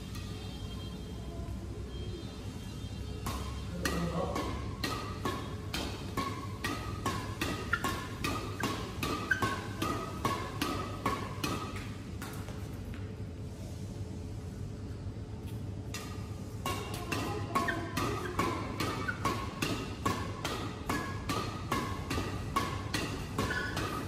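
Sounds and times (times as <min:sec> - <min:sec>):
badminton racquets hitting shuttlecock: 0:03.2 - 0:12.4, 0:15.9 - 0:24.0.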